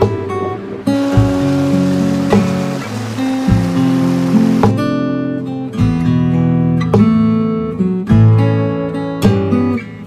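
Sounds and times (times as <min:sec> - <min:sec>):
acoustic guitar strumming chords: 0:01.0 - 0:04.9.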